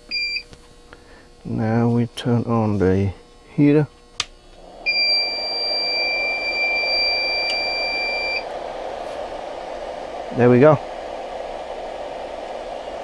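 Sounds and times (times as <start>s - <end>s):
space heater fan blowing: 0.0s - 13.0s
high electronic beep: 4.9s - 8.4s.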